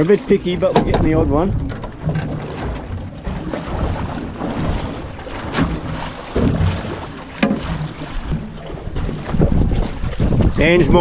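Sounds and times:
water slapping boat hull: 0.0s - 11.0s
wind buffeting microphone: 0.0s - 11.0s
sharp knocks: 0.7s - 3.4s, 5.3s - 8.5s.

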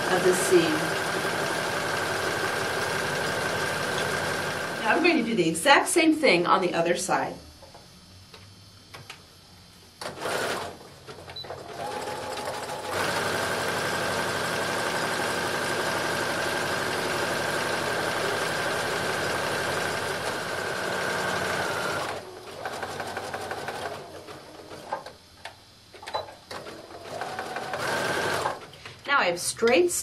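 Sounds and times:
sewing machine running: 0.0s - 5.0s, 10.0s - 24.9s, 26.5s - 28.6s.

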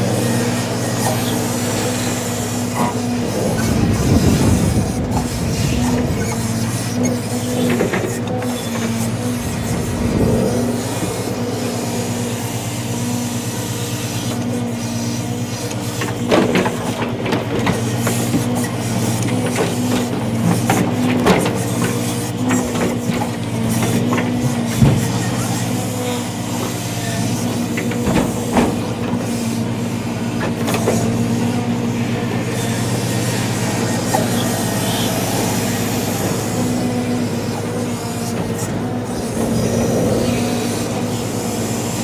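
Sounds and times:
diesel truck engine running: 0.0s - 42.0s
sharp knocks and clunks: 23.8s - 25.2s.

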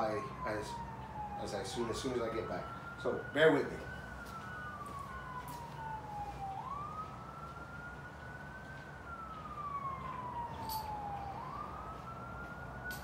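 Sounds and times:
low steady hum: 0.0s - 13.0s
siren wailing: 0.0s - 13.0s.

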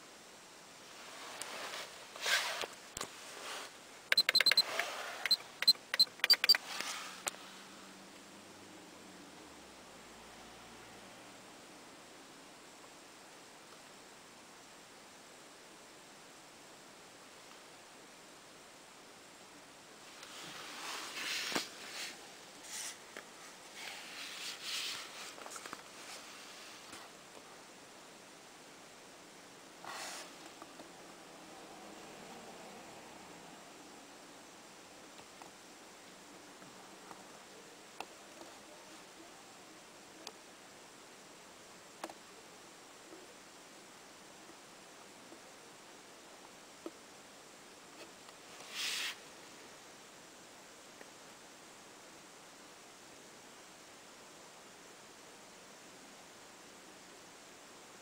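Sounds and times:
soft handling rustle: 0.9s - 3.8s, 20.1s - 27.5s
short bursts of hiss: 1.0s - 7.7s, 20.0s - 27.1s, 29.8s - 30.5s, 48.5s - 49.3s
sharp clicks: 4.1s - 6.6s
short high beeps: 4.1s - 6.6s.

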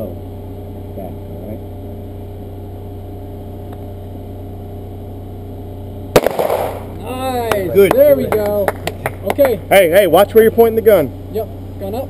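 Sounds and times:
steady low hum: 0.0s - 12.0s
handgun shot: 6.2s - 7.0s.

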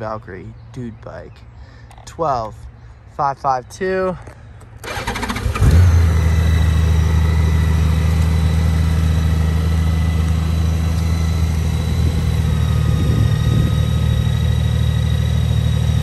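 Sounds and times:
motorcycle engine idling: 4.9s - 16.0s.

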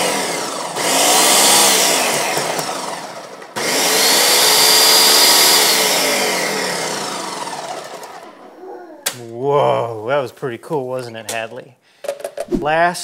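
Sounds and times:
blender motor running: 0.0s - 8.5s.

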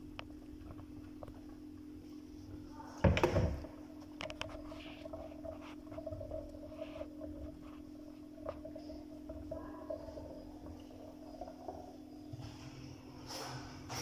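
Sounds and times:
steady low hum: 0.0s - 14.0s
plastic bowl knocking in metal sink: 3.0s - 3.8s.

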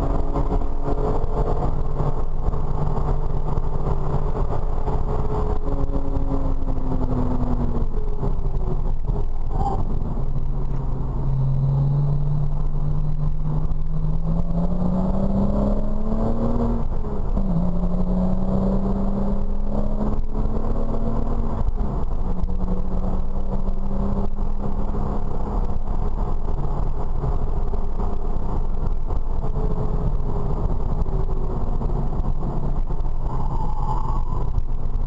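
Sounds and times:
car engine: 0.0s - 35.0s
road and tyre noise: 0.0s - 35.0s.

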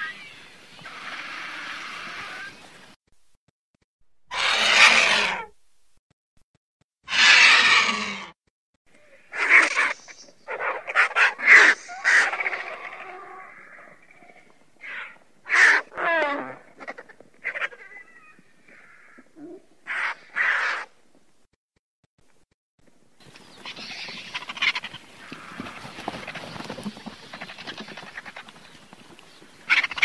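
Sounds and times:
vultures calling hoarsely: 0.0s - 2.8s, 4.3s - 5.6s, 7.0s - 21.0s, 23.2s - 30.0s.

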